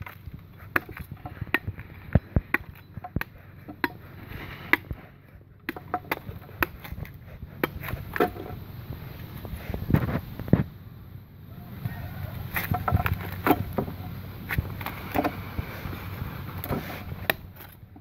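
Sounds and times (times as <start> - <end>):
knife chopping into wood: 2.5 - 8.5.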